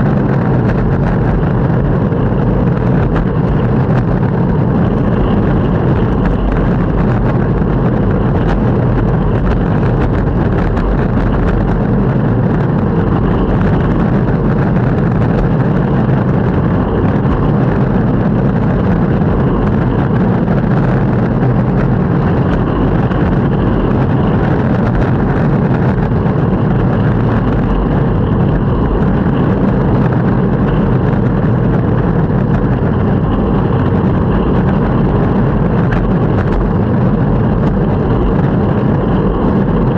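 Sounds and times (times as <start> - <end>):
longboard wheels rolling on pavement: 0.0 - 39.9.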